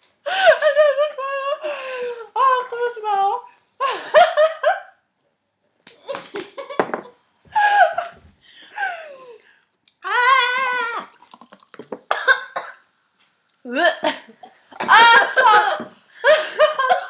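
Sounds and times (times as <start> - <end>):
young women laughing and crying out: 14.8 - 17.0.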